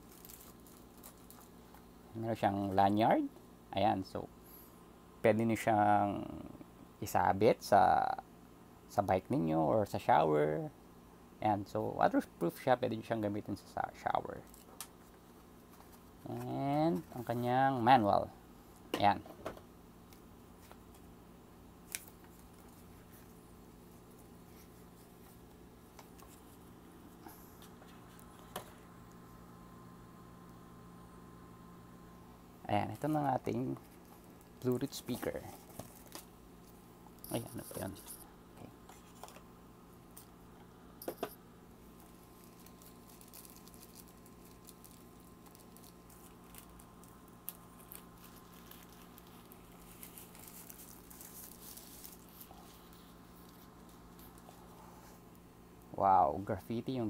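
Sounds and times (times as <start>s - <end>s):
plastic sleeve rustling: 0.0s - 1.9s, 32.8s - 38.2s, 41.8s - 55.4s.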